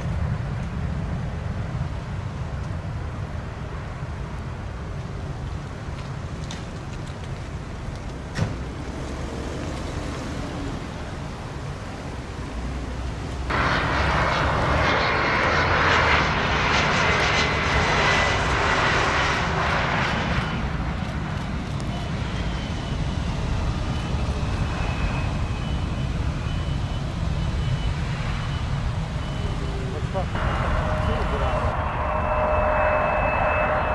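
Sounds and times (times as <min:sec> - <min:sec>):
jet engines roaring with whine: 0:00.0 - 0:33.9.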